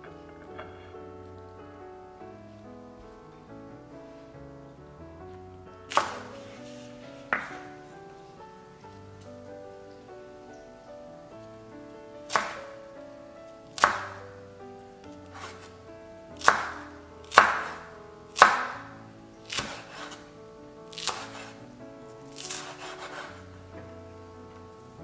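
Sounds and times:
soft background music: 0:00.0 - 0:25.0
knife slicing on wooden board: 0:05.9 - 0:06.8, 0:15.3 - 0:15.7, 0:19.5 - 0:20.2, 0:20.9 - 0:21.6, 0:22.4 - 0:23.4.

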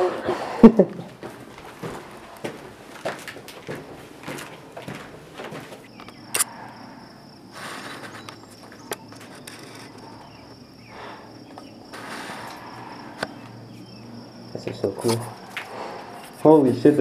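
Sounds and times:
soft shuffling footsteps: 0:00.0 - 0:06.2
insects trilling: 0:00.0 - 0:17.0
sharp clicks: 0:06.0 - 0:06.5.

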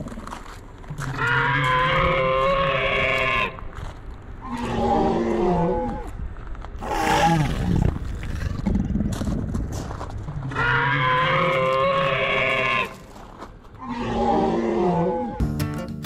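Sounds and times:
dinosaur roars: 0:04.4 - 0:06.1, 0:06.8 - 0:09.1, 0:10.5 - 0:12.9, 0:13.8 - 0:15.4.

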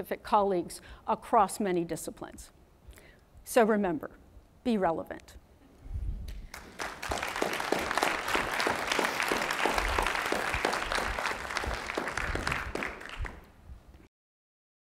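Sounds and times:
audience applauding: 0:06.5 - 0:13.5.

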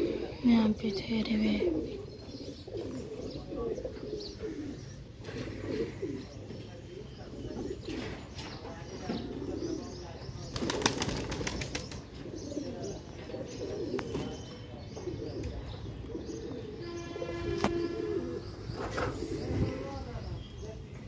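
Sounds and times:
pigeons cooing: 0:00.0 - 0:20.4
flurry of wingbeats: 0:10.5 - 0:12.1.

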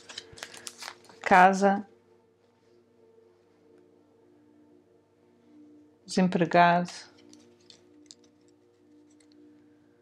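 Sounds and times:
faint soft background music: 0:00.0 - 0:10.0.

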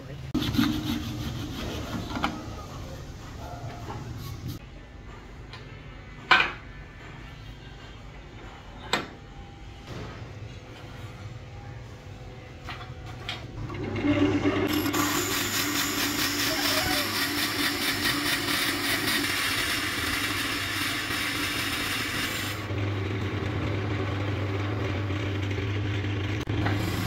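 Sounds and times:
wood lathe humming: 0:13.7 - 0:27.0
boring bit cutting wood: 0:14.7 - 0:22.7.

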